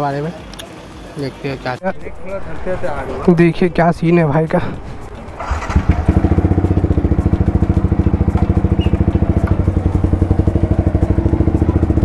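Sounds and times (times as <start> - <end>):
motorcycle engine starting and idling: 5.1 - 12.0.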